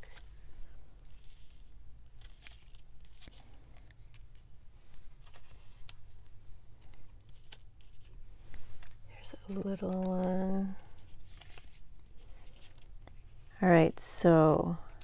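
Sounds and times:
paper rustling against plastic: 5.1 - 13.4
plastic crackles: 5.2 - 13.3.

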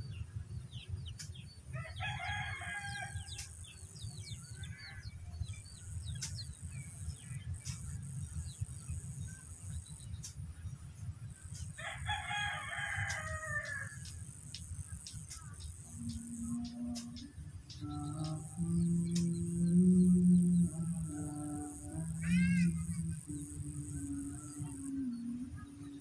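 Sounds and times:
small birds chirping: 0.0 - 26.0
steady low rumble: 0.0 - 26.0
rooster crowing: 1.7 - 3.4, 11.8 - 14.2
high-pitched buzz: 12.7 - 26.0.

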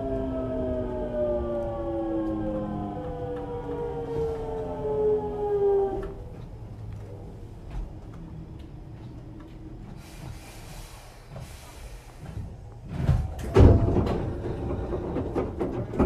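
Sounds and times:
train humming: 0.0 - 16.0
air hiss of train doors: 9.9 - 12.6
doors knocking and thudding shut: 12.8 - 16.0.

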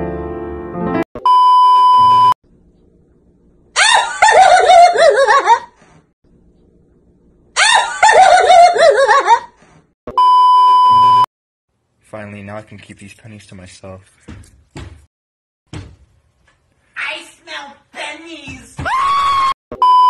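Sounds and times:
piano music: 0.0 - 1.0
test-tone bleep: 1.2 - 2.4, 10.1 - 11.3, 19.7 - 20.0.

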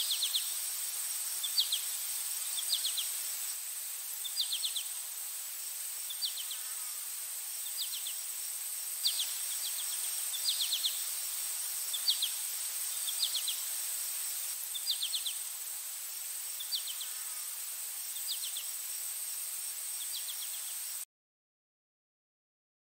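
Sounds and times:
steady hiss: 0.0 - 21.1.

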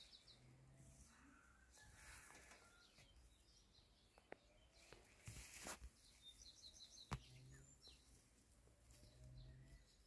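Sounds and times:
birds chirping: 0.0 - 10.0
brief rustle: 4.8 - 6.0.

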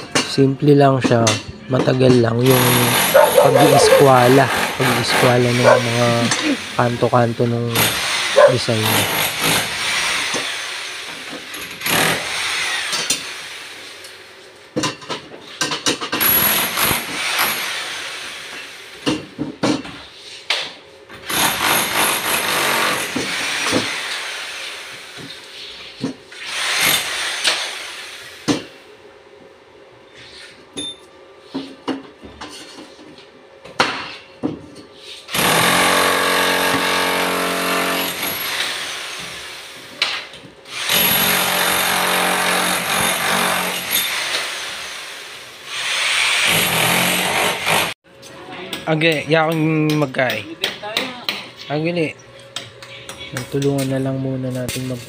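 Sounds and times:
demolition hammer hammering: 2.4 - 6.5.

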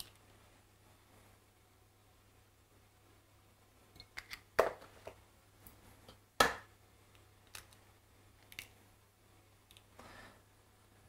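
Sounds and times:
eggshells cracking: 7.4 - 7.8.

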